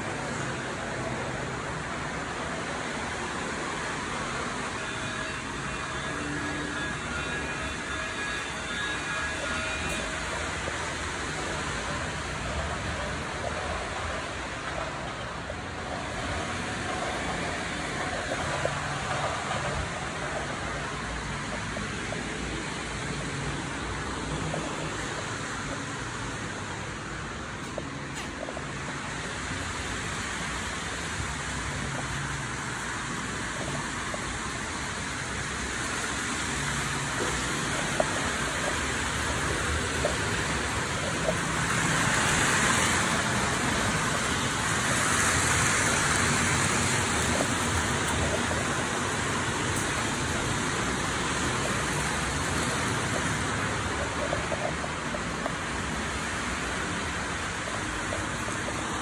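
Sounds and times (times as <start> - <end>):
model trains rolling on track: 0.0 - 59.0.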